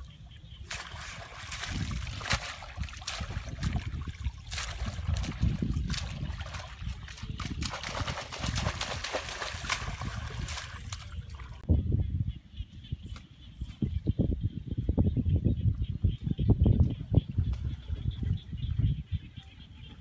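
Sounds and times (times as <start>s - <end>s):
water splashing and sloshing: 0.0s - 11.7s.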